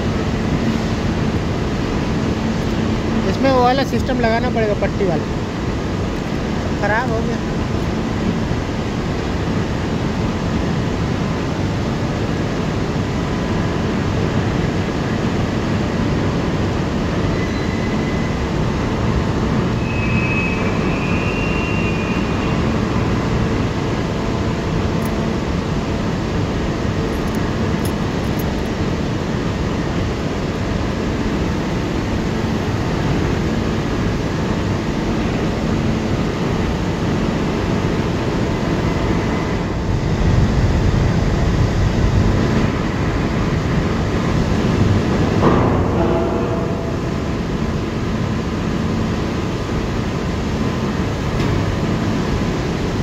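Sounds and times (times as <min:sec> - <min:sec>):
crane motors and wheels rumbling: 0:00.0 - 0:53.0
faint high squeal: 0:17.3 - 0:18.4, 0:19.8 - 0:22.7.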